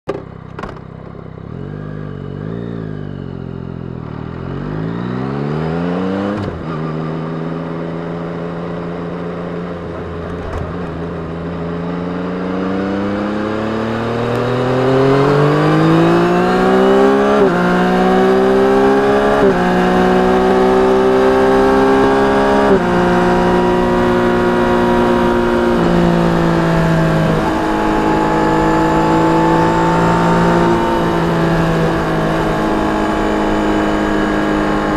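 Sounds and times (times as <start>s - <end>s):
motorcycle engine accelerating: 0.1s - 34.9s.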